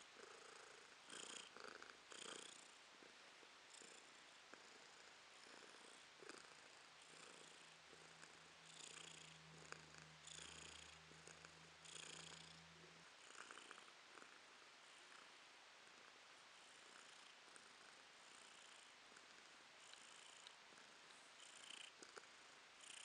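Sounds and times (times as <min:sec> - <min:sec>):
cat purring: 0:00.0 - 0:23.0.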